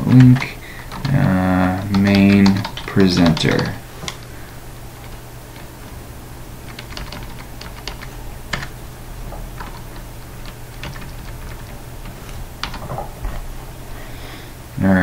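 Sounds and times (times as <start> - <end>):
computer keyboard typing: 0.0 - 4.3, 4.9 - 6.0, 6.6 - 13.2
steady low hum: 0.0 - 15.0.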